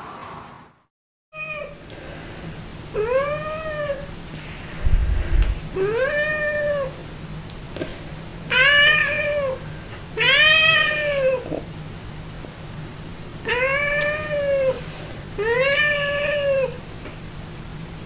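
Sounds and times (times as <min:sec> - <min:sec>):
cat meowing: 0:10.2 - 0:11.4, 0:13.5 - 0:14.8, 0:15.4 - 0:16.8.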